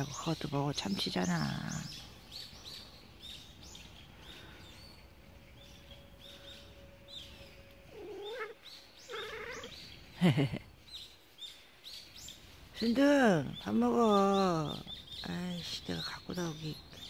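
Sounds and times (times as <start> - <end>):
small birds chirping: 0.0 - 17.0
cats yowling: 7.7 - 9.8.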